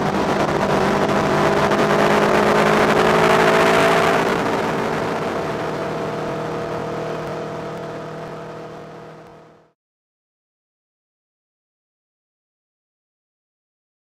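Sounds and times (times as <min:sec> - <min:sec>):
wind and road rush: 0:00.0 - 0:09.7
motorcycle engine cruising: 0:00.0 - 0:09.8.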